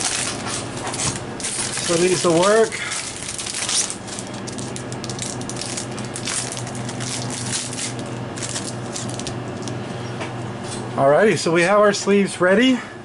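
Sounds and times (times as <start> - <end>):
plastic sleeves crinkling: 0.0 - 9.8
steady low hum: 0.0 - 13.0.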